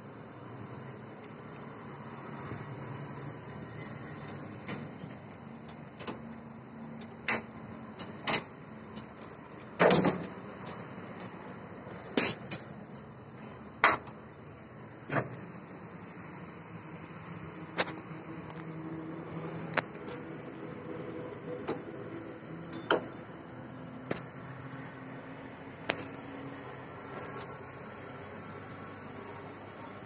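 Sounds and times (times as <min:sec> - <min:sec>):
metal grille clicks and clanks: 0:07.0 - 0:13.1.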